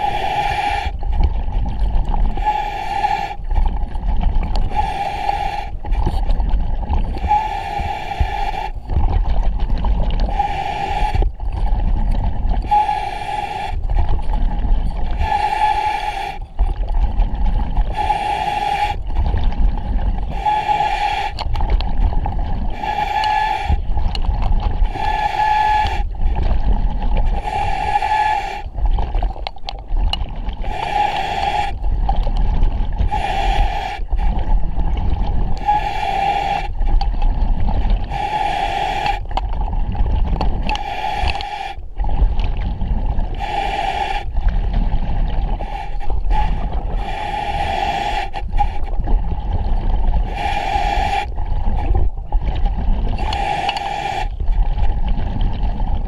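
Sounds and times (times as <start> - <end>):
hissing regulator inhale: 0.0 - 1.0, 2.3 - 3.5, 4.6 - 6.1, 7.2 - 8.8, 10.2 - 11.3, 12.6 - 14.0, 15.1 - 16.5, 17.8 - 19.1, 20.2 - 21.4, 22.6 - 24.0, 24.8 - 26.5, 27.2 - 28.8, 30.6 - 31.8, 33.0 - 34.4, 35.6 - 36.9, 38.0 - 39.3, 40.7 - 41.8, 43.3 - 44.5, 45.5 - 48.9, 50.2 - 52.0, 53.2 - 54.4.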